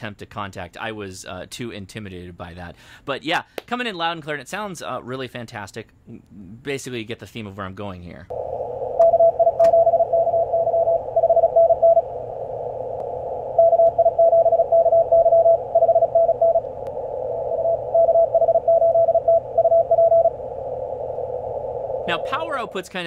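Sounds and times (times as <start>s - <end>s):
radio receiver hiss: 8.3s - 14.1s, 15.5s - 23.0s
morse code tone: 9.0s - 12.1s, 13.6s - 16.7s, 17.4s - 20.4s.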